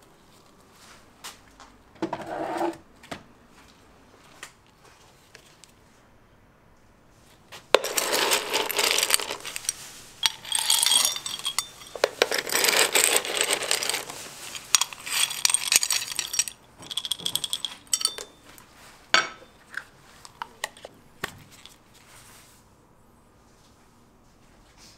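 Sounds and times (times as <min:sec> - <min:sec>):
hard candies clattering: 0:07.8 - 0:18.5.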